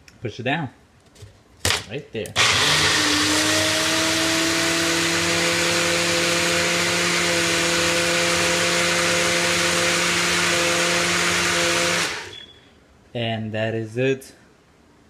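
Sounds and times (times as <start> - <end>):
blender motor running: 2.4 - 12.4.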